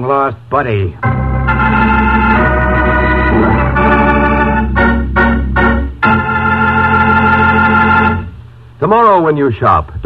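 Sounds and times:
short repeated organ chords: 1.0 - 8.4
held organ chords: 1.0 - 8.6.

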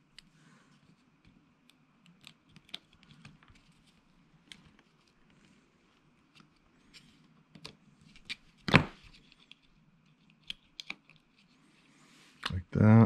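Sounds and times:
small clicks and taps of model parts: 1.2 - 5.2, 7.5 - 8.4, 9.1 - 11.5.

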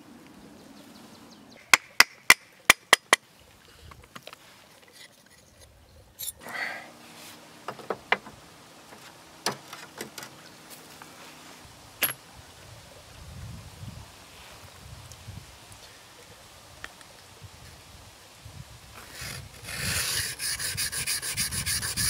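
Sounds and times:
stone clattering on metal and wood: 12.0 - 12.2.

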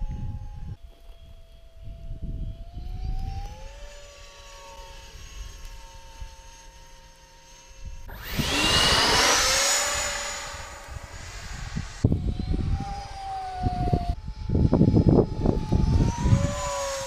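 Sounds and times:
model jet whine: 0.0 - 17.0
jet rushing whoosh: 8.1 - 13.7.

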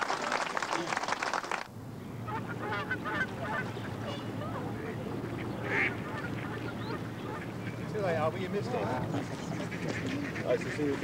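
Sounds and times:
waterfowl honking: 2.3 - 7.9, 8.7 - 11.0.

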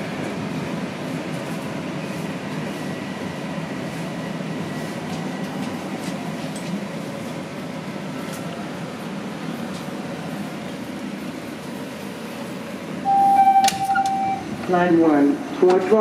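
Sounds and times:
subway train wheels rumbling: 0.0 - 16.0
faint high whine: 13.0 - 14.8.

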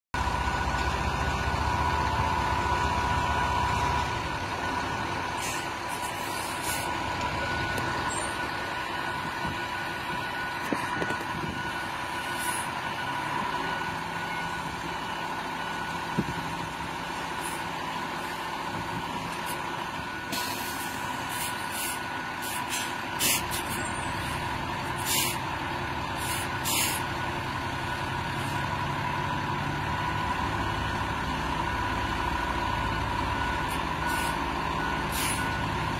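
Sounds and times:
steady high tone: 0.2 - 22.4
heavy truck engines running: 0.2 - 35.9
short air hisses: 26.2 - 27.0.

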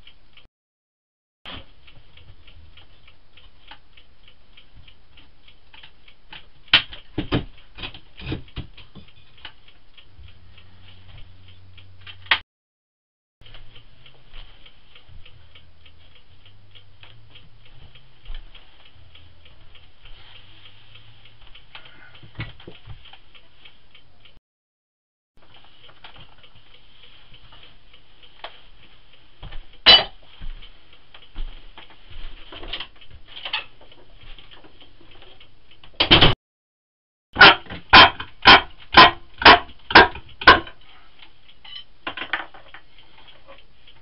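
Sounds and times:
rapid even ticking: 13.4 - 22.2.

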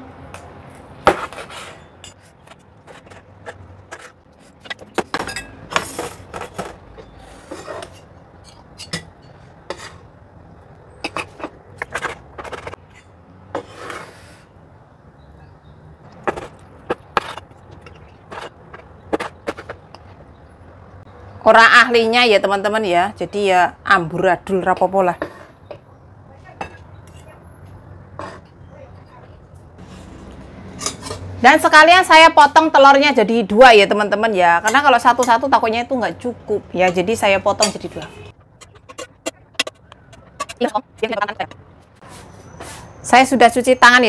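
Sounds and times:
cleaver scraping board: 1.1 - 4.2, 13.5 - 14.4.

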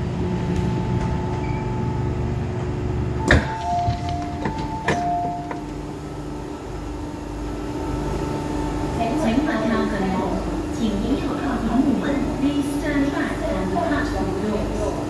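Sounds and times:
train low rumble: 0.0 - 15.0
electronic door tones: 3.2 - 5.8
train door clunk: 3.2 - 5.9.

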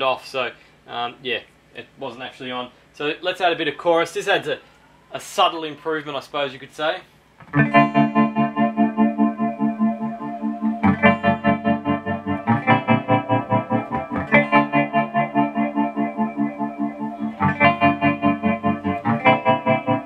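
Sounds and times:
shimmering electric guitar chords: 7.5 - 20.0.

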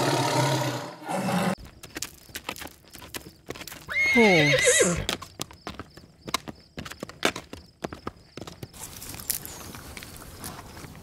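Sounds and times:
horse hooves clip-clopping: 1.6 - 11.0
horse whinnying: 3.9 - 5.1.

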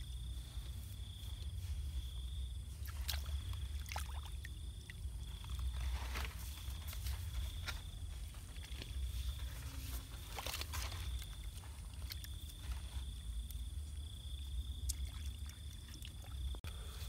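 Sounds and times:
steady low rumble: 0.0 - 14.8
hands sloshing muddy water: 2.6 - 16.6
small splashes: 2.8 - 6.2, 8.4 - 13.6, 14.7 - 16.6.

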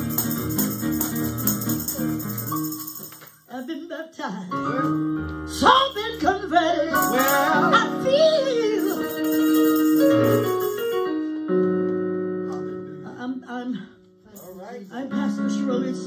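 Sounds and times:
keyboard chords: 0.0 - 3.4, 4.5 - 13.4, 14.0 - 16.0
woman singing gospel with vibrato: 5.5 - 9.7.

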